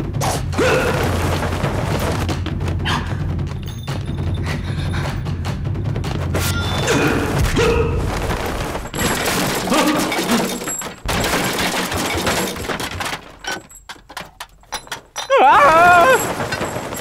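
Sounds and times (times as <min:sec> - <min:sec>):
fight crashes and thuds: 0:00.2 - 0:03.5, 0:06.0 - 0:13.8, 0:15.3 - 0:17.0.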